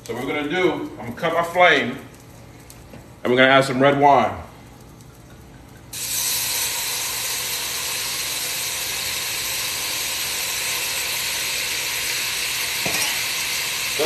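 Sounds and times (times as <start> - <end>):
wine sizzling in hot pan: 4.7 - 14.0.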